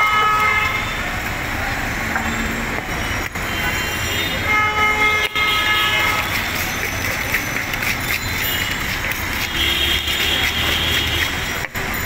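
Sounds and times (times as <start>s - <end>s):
long many-toned horn blare: 0.0s - 1.0s, 3.6s - 6.6s, 9.4s - 11.4s
street noise: 0.0s - 12.0s.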